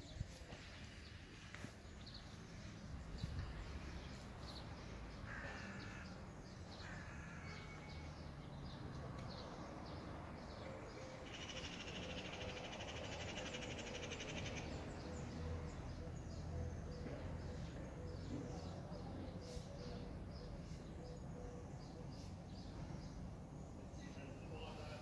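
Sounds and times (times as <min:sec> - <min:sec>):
birds calling harshly: 0:05.2 - 0:08.1.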